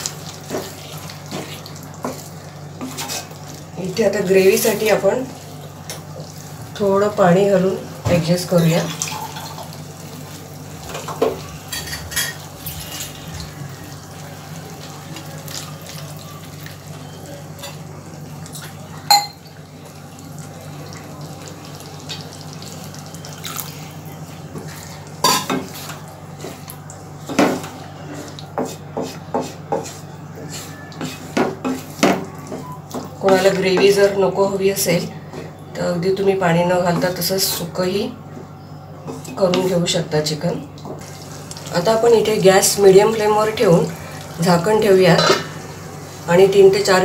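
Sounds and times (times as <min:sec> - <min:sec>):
wooden spatula scraping a pan: 0:00.4 - 0:03.4, 0:27.3 - 0:32.6.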